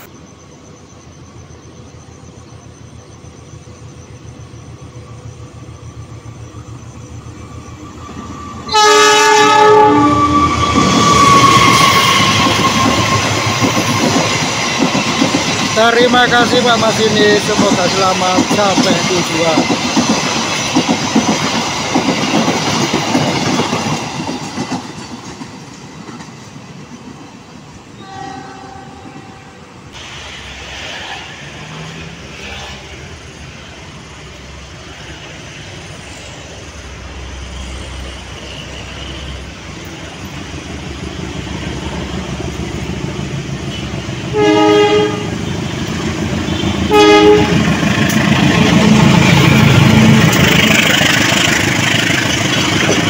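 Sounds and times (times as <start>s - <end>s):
diesel locomotive engine: 0.0s - 53.0s
train horn blasts: 8.6s - 13.2s, 28.0s - 29.6s, 43.7s - 45.4s, 46.4s - 47.7s
train wheels clattering over rails: 10.6s - 27.4s, 38.0s - 53.0s.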